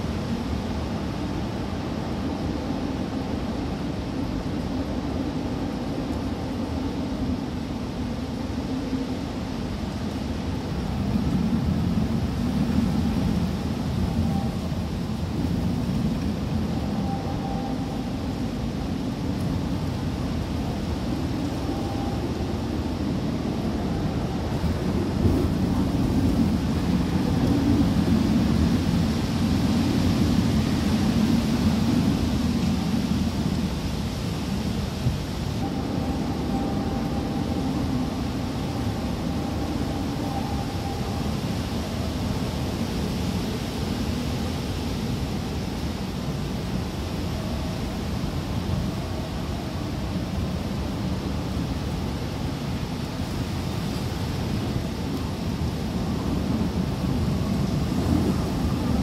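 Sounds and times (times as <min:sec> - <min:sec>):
strong wind rushing: 0:00.0 - 0:59.0.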